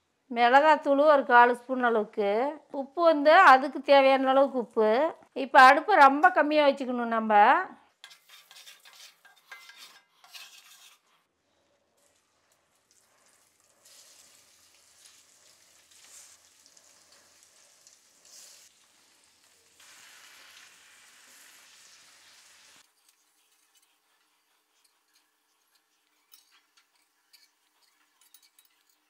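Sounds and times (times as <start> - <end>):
oil sizzling: 8.0 - 11.1, 12.0 - 29.0
wooden spatula scraping pan: 8.0 - 11.3.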